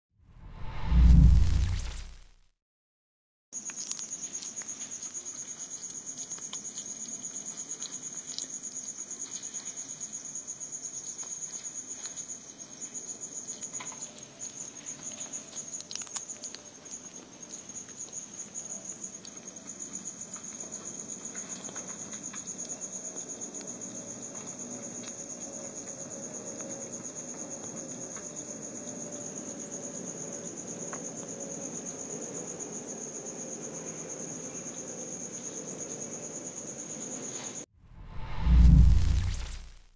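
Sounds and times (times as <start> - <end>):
animal chewing crunchy clicks: 3.6 - 9.9, 13.5 - 22.8
insect trill: 3.6 - 37.7.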